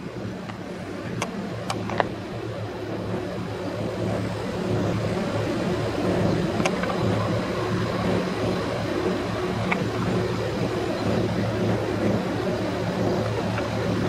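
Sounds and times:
engine idling: 0:00.0 - 0:14.0
outdoor background noise: 0:00.0 - 0:14.0.

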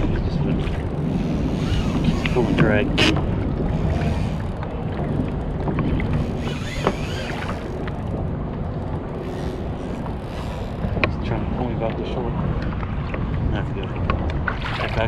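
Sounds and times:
water moving around kayak hull: 0:00.0 - 0:15.0
wind buffeting microphone: 0:00.0 - 0:15.0
rising and falling squeal: 0:06.1 - 0:08.0.

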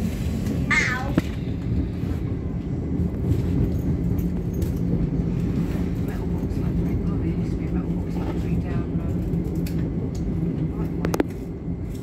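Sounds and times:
constant hum: 0:00.0 - 0:12.0
train wheels rumbling on track: 0:00.0 - 0:12.0.

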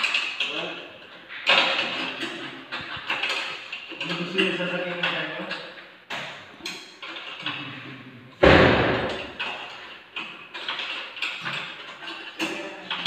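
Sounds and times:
loud thud: 0:08.4 - 0:09.4.

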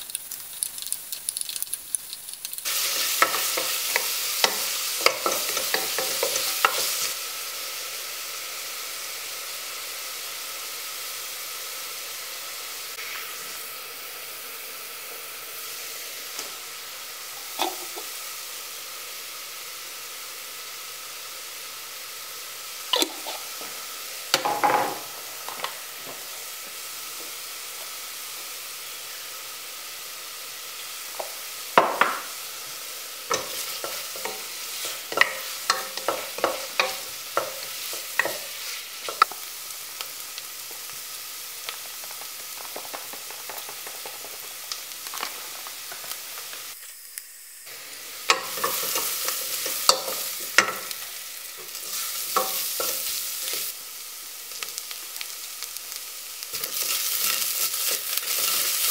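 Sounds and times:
onions sizzling in a pot: 0:00.0 - 0:58.9
spoon scraping and knocking pot: 0:31.2 - 0:32.3.

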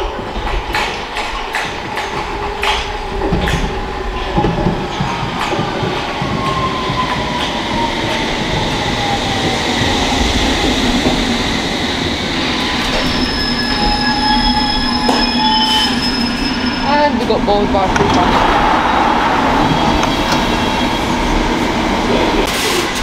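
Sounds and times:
high brake squeal: 0:12.6 - 0:17.1.

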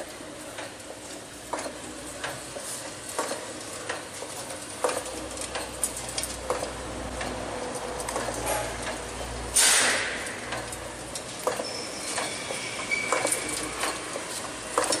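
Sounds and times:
metallic clicks and clanks: 0:03.1 - 0:15.0.

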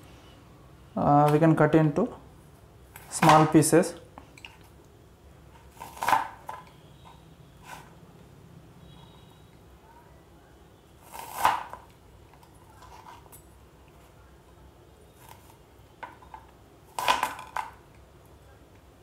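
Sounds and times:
knife cutting pear: 0:05.6 - 0:06.7, 0:11.0 - 0:11.9, 0:16.9 - 0:17.6.

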